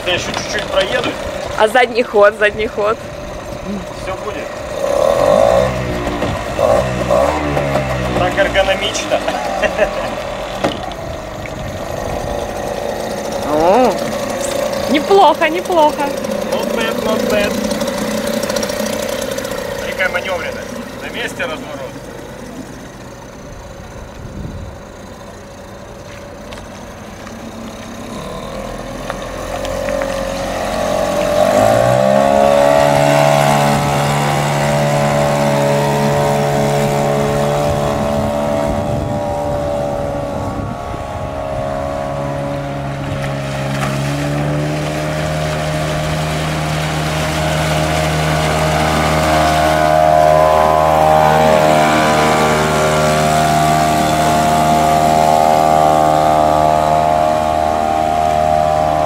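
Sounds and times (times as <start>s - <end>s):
outboard motor revving: 0.0s - 59.0s.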